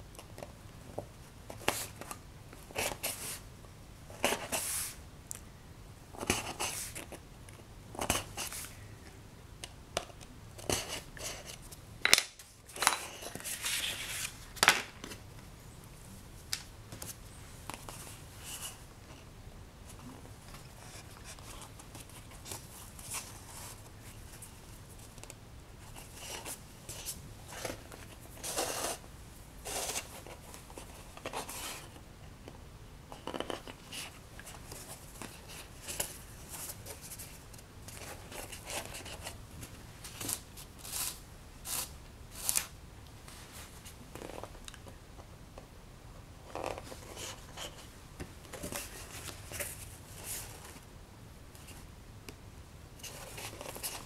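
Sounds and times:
paper rustling: 12.7 - 15.2, 53.0 - 54.0.

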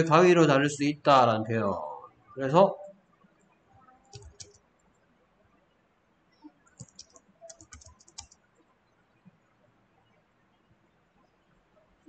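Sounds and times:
faint keyboard typing: 3.7 - 4.7, 6.4 - 9.4.

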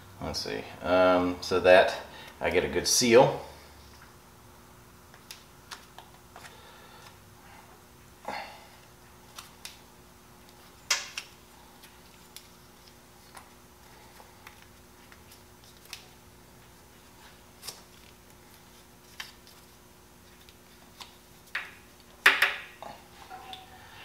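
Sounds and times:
thread tape clicking and crinkling: 9.2 - 16.7.

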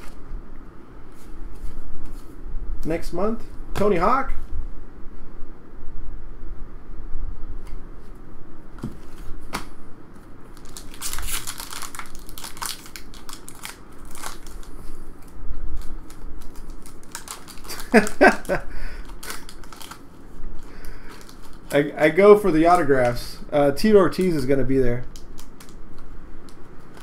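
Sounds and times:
foil wrapper crinkling and tearing: 10.5 - 21.9, 25.0 - 27.0.

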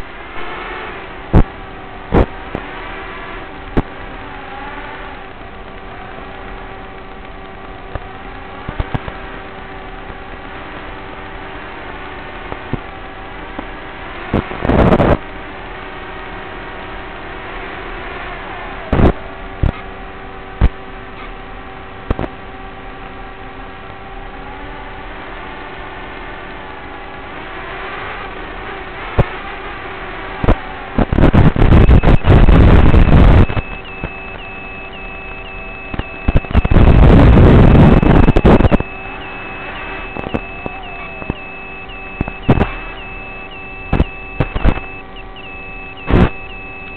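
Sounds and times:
bursts of static: 0.0 - 46.9
electronic hum and hiss: 0.0 - 46.9
faint held tones: 0.0 - 46.9.

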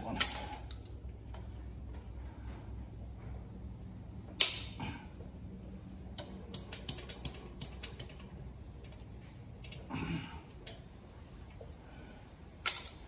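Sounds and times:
locking pliers metallic clicks: 12.6 - 13.0.

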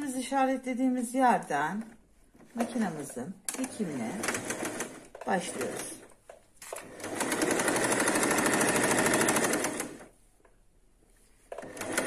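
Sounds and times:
sewing machine stitching: 2.5 - 6.0, 6.6 - 10.1, 11.5 - 12.0.

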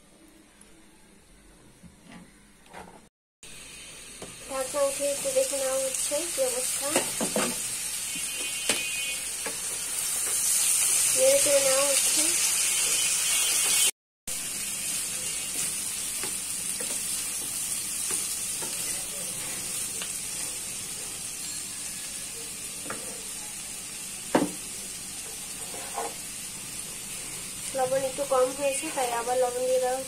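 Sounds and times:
food sizzling in oil: 3.5 - 30.0
spatula scraping the pan: 25.4 - 26.2.

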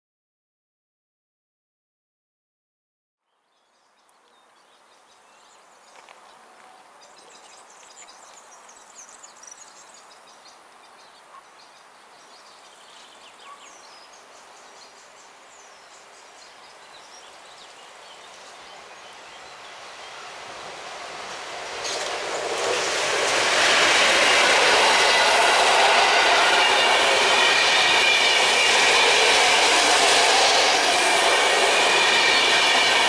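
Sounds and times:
birds chirping: 3.3 - 33.0
steady outdoor hiss: 3.3 - 33.0
train rumble: 18.4 - 33.0.

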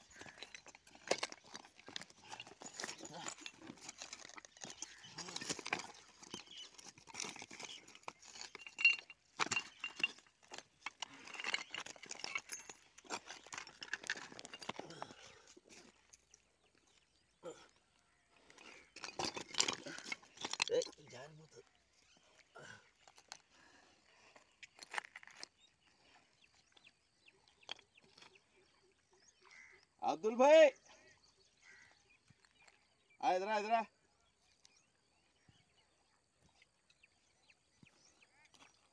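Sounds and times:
stones crunching underfoot: 0.0 - 16.2, 18.6 - 21.8, 24.4 - 25.9.

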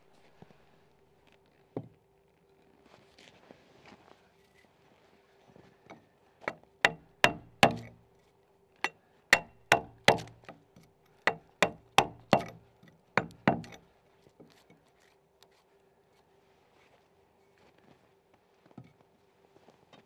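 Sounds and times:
chisel striking a log: 6.5 - 8.0, 9.4 - 10.6, 11.3 - 12.6, 13.2 - 13.8.

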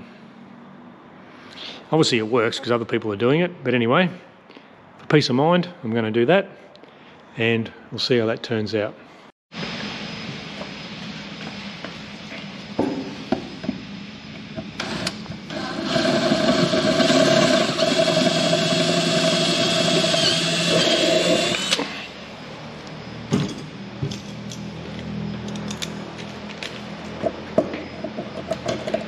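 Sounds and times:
power drill drilling into metal: 14.8 - 22.1.

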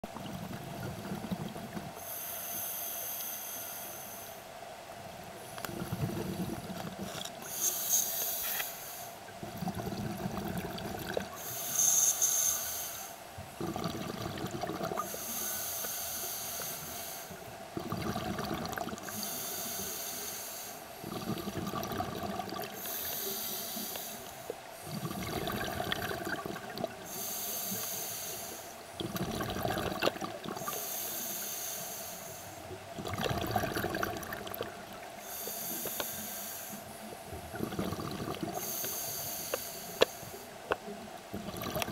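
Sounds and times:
exhaled bubbles gurgling: 0.0 - 2.0, 5.6 - 7.6, 9.4 - 11.5, 13.6 - 15.3, 17.6 - 19.3, 21.0 - 27.2, 29.0 - 30.8, 32.8 - 36.1, 37.0 - 40.1, 41.2 - 41.9
regulator inhalation hiss: 2.0 - 4.5, 7.4 - 9.3, 11.3 - 13.3, 15.0 - 17.5, 19.0 - 21.3, 22.7 - 25.1, 27.0 - 28.9, 30.6 - 32.8, 35.2 - 37.4, 38.5 - 40.7.

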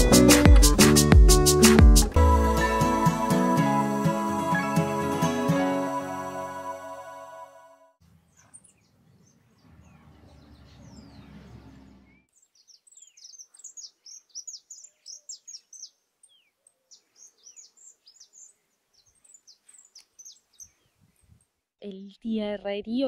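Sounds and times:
small birds chirping: 8.1 - 22.6.

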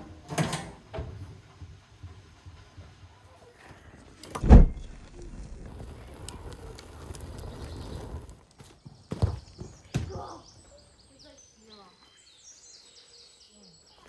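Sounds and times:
wood fire crackling: 0.0 - 12.5
heavy thump: 4.4 - 4.8
sharp thumps: 4.4 - 5.0.

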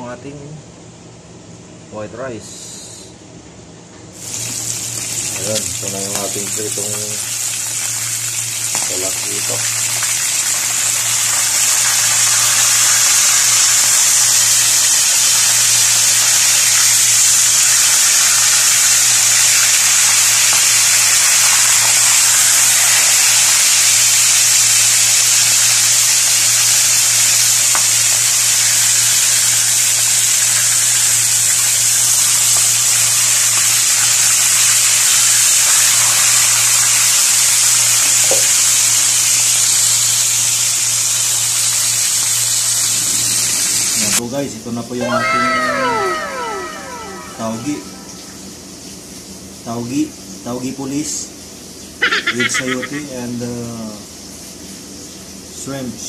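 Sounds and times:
fish frying in hot oil: 4.2 - 44.2.

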